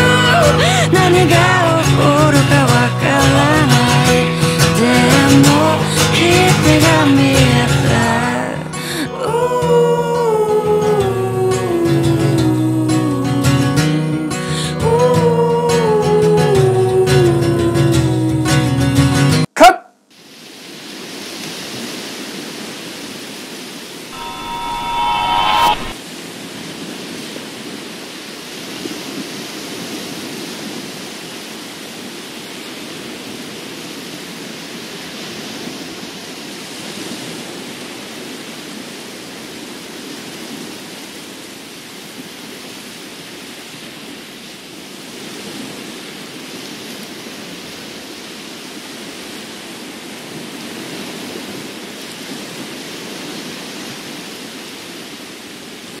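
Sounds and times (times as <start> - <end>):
surf washing onto beach: 20.1 - 56.0.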